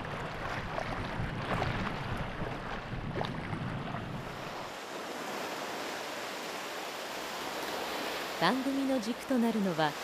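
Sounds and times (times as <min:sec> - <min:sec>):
wind rumbling on microphone: 0:00.0 - 0:06.8.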